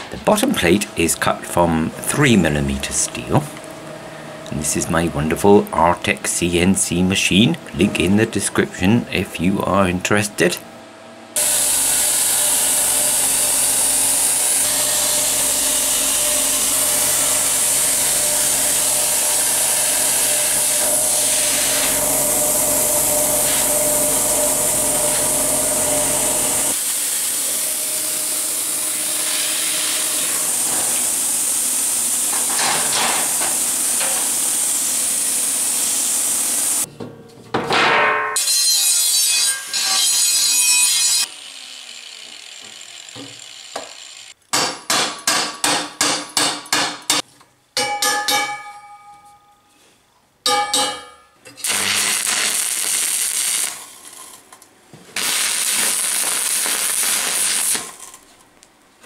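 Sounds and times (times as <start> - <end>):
steady hum: 0.0 - 34.2
angle grinder grinding steel: 11.4 - 36.9, 38.4 - 44.4
plasma cutter hissing: 11.4 - 36.9, 51.6 - 54.0, 55.2 - 58.0.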